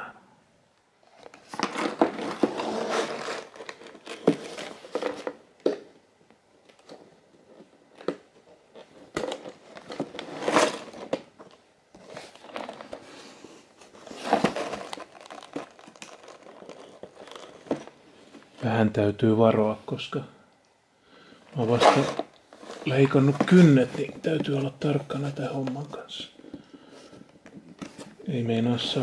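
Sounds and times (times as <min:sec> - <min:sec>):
cardboard box crinkling and scraping: 0:01.2 - 0:05.4, 0:08.8 - 0:11.2, 0:12.0 - 0:18.6, 0:21.6 - 0:29.0.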